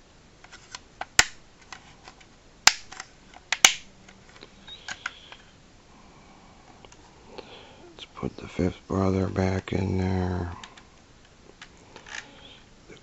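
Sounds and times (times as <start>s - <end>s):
plastic toy parts clicking: 0.5s - 4.2s.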